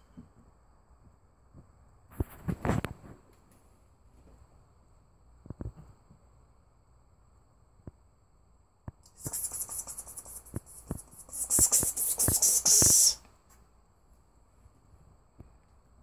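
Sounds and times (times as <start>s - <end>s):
person hissing pspsps: 9.0s - 13.3s.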